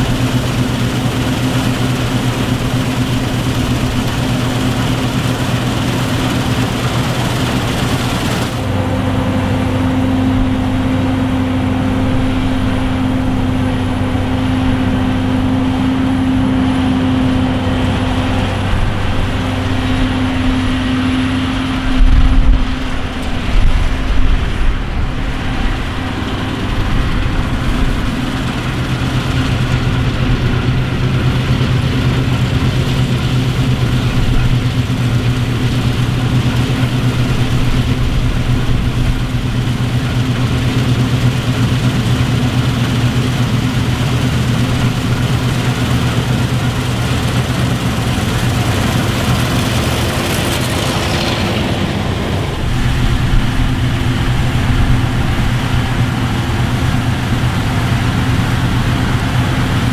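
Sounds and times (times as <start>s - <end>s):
combine harvester engine droning: 0.0s - 59.9s.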